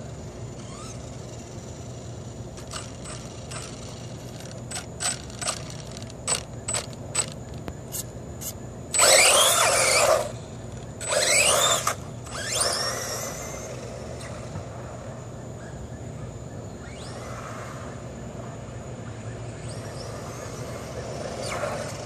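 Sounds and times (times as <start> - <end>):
rc car motor whine: 0.0 - 8.0, 8.9 - 15.7, 16.7 - 22.0
rc car throttle blips: 0.6 - 1.1, 2.6 - 8.0, 8.9 - 10.4, 11.0 - 14.4.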